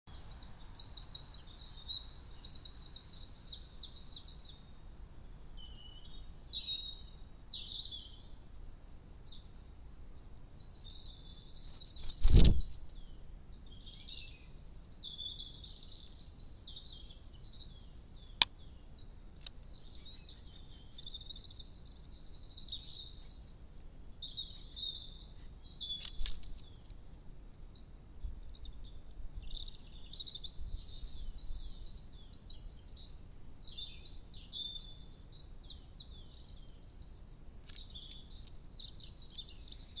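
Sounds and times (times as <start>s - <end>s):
songbirds singing: 0.0s - 40.0s
sharp clicks: 25.9s - 27.0s.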